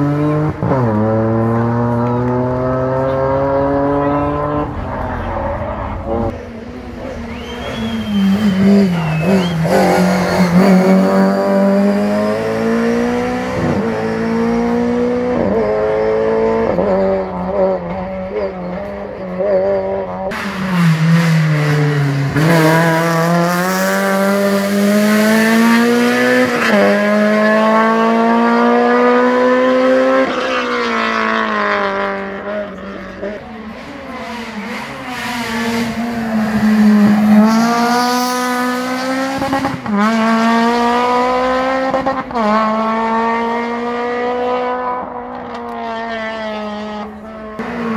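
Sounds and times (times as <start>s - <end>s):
rally car engine revving: 0.0s - 47.9s.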